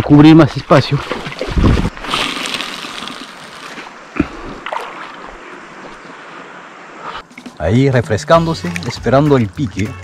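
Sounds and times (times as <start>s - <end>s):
river water sloshing and lapping: 0.6s - 7.6s
splashy knocks: 0.9s - 3.0s.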